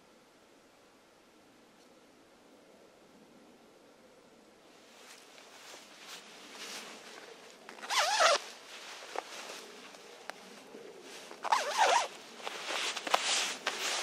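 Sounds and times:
clothing zipper pulled: 7.8s - 8.4s, 11.3s - 12.1s.

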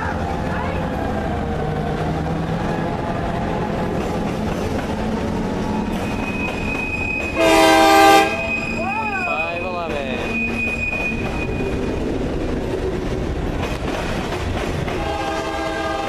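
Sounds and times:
freight train rumbling past: 0.0s - 16.0s
high wheel squeal: 5.7s - 12.1s
train horn blast: 7.3s - 8.8s, 14.9s - 16.0s.

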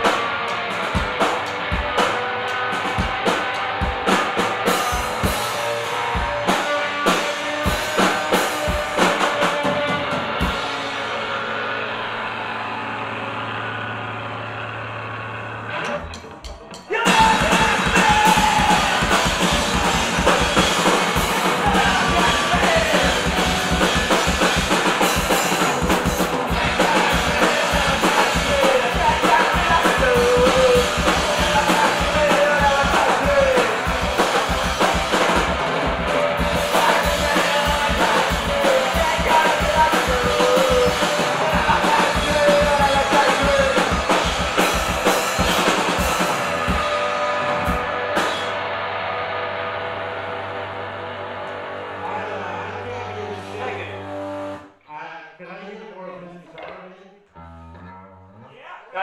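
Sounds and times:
drum kit beat: 0.0s - 11.4s, 16.0s - 48.7s
electric guitar: 0.0s - 54.7s
man singing: 16.9s - 24.5s, 26.4s - 34.6s, 36.4s - 44.4s.

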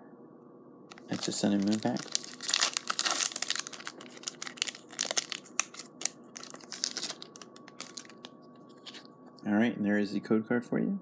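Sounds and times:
foil wrapper tearing and crinkling: 0.9s - 9.1s.

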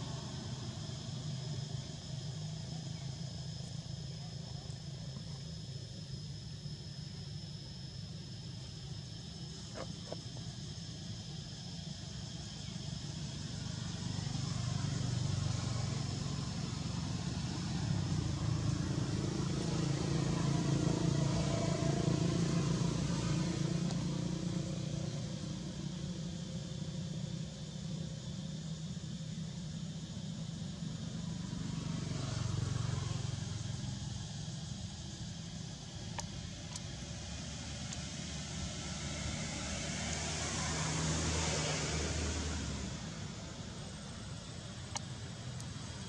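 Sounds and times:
distant vehicle rumble: 12.6s - 46.0s.

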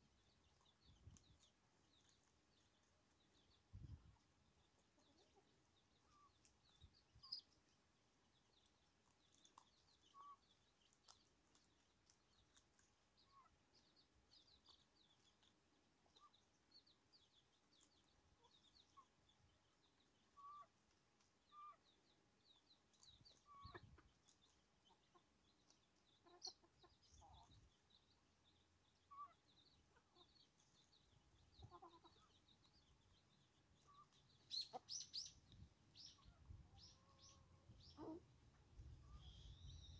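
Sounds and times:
chicks peeping: 0.0s - 39.9s
hen clucking softly: 3.7s - 7.5s, 20.2s - 22.0s, 23.0s - 28.0s, 29.0s - 39.9s.

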